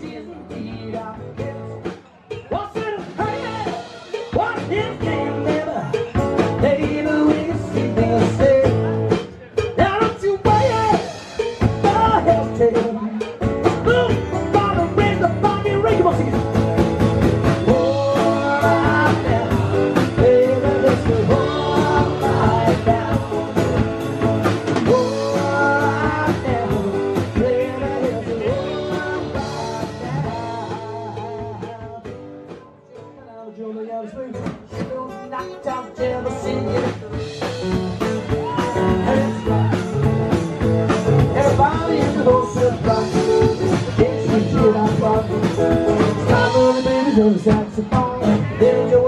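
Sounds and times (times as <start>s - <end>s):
men singing: 0.0s - 16.5s, 17.3s - 32.2s, 33.3s - 40.4s, 41.1s - 49.0s
strummed acoustic guitars: 0.0s - 33.3s, 34.0s - 49.0s.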